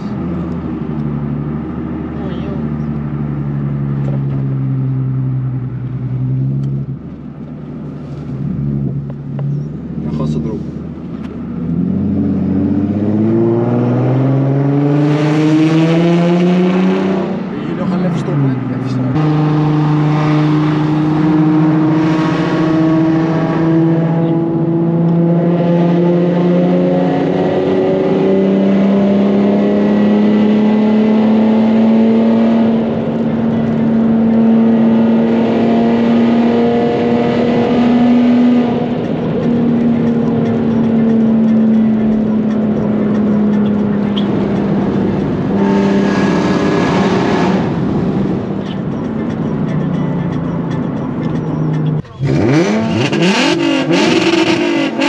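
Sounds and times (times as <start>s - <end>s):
car exhaust droning in a tunnel: 18.4s - 55.0s.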